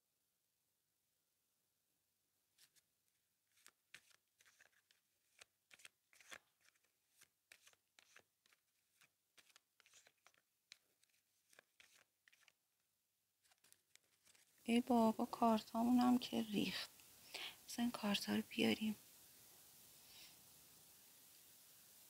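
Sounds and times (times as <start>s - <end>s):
cards shuffled by hand: 2.6s - 12.6s, 13.4s - 14.6s.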